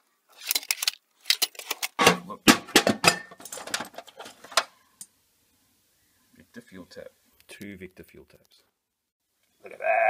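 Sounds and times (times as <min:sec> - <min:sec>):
metal tools clinking in toolbox drawer: 0:02.7 - 0:04.6.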